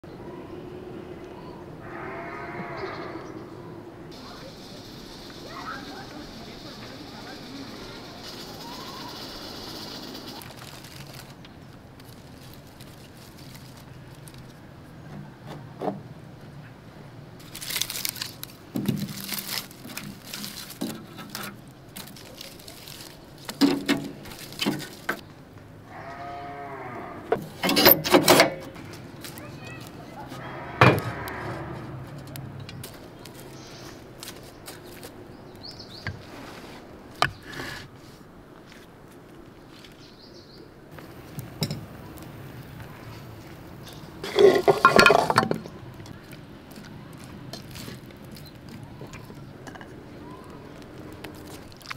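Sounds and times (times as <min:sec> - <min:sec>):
farm animal calling: 0:00.4 - 0:03.8, 0:25.9 - 0:27.4, 0:29.4 - 0:32.0.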